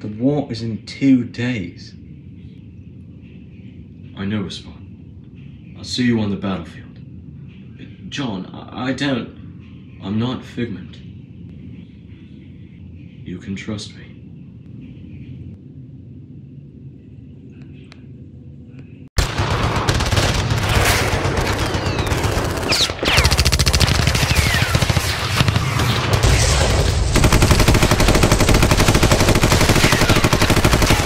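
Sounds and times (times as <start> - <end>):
faint low rumble: 6.6 - 22.0
machine-gun and rifle fire: 19.2 - 31.0.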